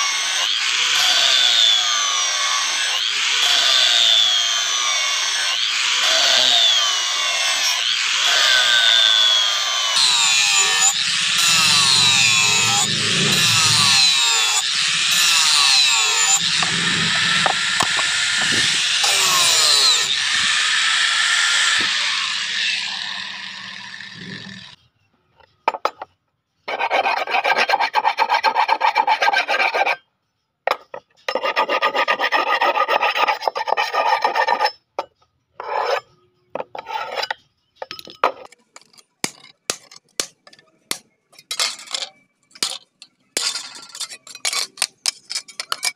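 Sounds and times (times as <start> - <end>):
angle grinder grinding steel: 0.0 - 24.8
hand file rasping on metal: 9.9 - 24.8, 26.7 - 30.0, 31.3 - 34.8.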